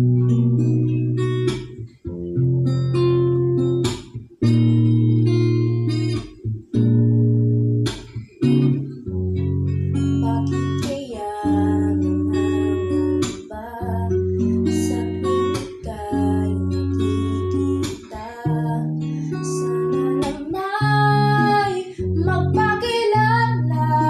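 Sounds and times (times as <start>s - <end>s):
strummed guitar chords: 0.0s - 24.0s
girl singing: 10.1s - 24.0s.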